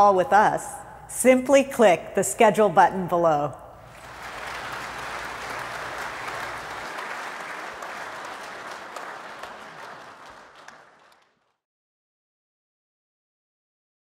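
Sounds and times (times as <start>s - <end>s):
applause: 3.8s - 11.6s.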